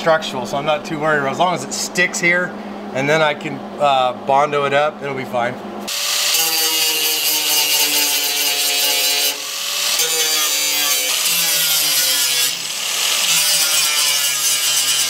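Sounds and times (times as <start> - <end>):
angle grinder grinding metal: 5.9 - 15.0.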